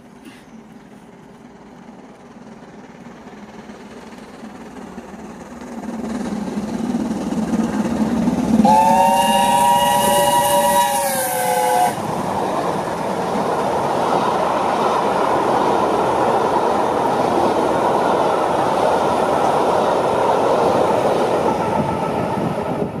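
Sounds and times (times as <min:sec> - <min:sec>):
train wheels rushing on rails: 0:00.0 - 0:23.0
steam locomotive whistle: 0:08.6 - 0:12.1.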